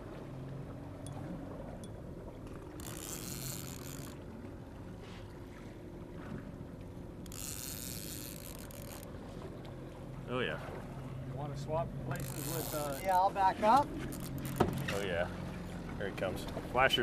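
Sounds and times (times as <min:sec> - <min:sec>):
boat motor humming: 0:00.0 - 0:17.0.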